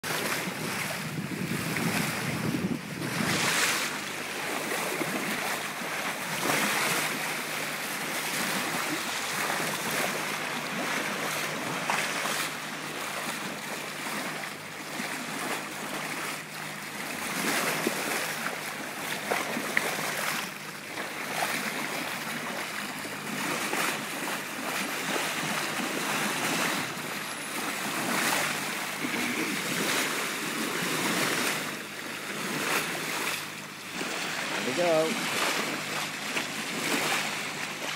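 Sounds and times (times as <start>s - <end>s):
boat motor low hum: 0.0s - 37.9s
bow wave splashing along hull: 0.0s - 37.9s
wind buffeting microphone: 0.2s - 5.5s.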